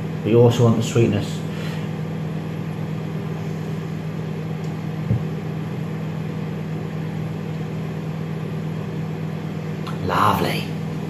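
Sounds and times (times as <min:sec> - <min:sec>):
low mechanical hum: 0:00.0 - 0:11.0
short knock: 0:05.1 - 0:05.3.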